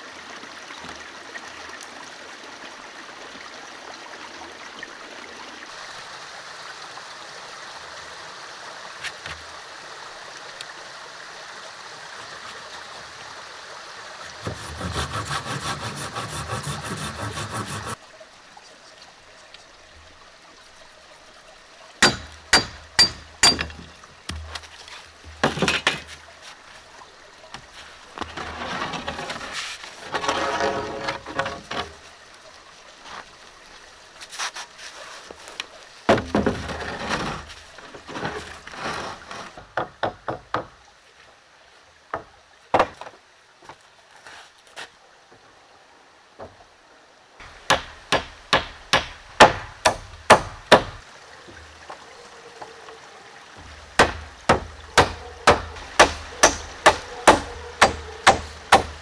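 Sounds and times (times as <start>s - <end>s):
wooden boards scraping and knocking: 14.4s - 18.0s, 23.1s - 26.3s, 27.6s - 32.0s, 34.3s - 40.7s.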